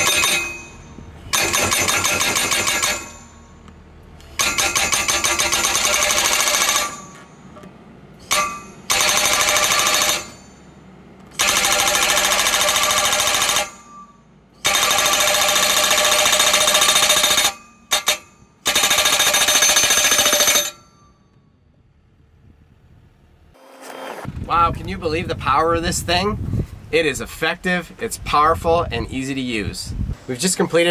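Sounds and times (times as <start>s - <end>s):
hydraulic post driver hammering: 0.0s - 21.4s.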